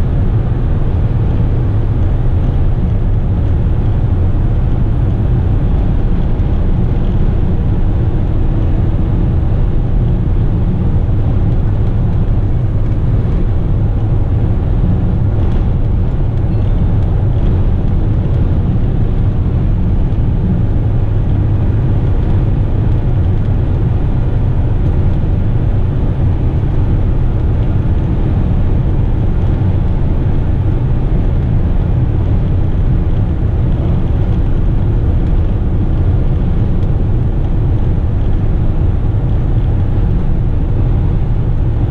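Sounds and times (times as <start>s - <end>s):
diesel truck engine droning: 0.0s - 41.9s
road noise: 0.0s - 41.9s.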